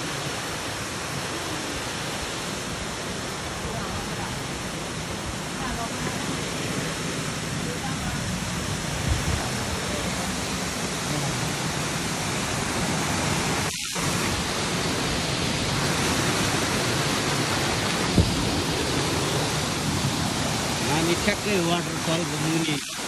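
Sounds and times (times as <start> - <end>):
water falling over rocks: 0.0 - 23.0.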